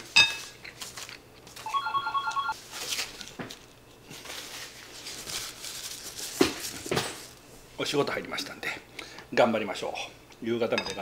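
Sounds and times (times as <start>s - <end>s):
soft rustling and handling: 2.3s - 7.4s.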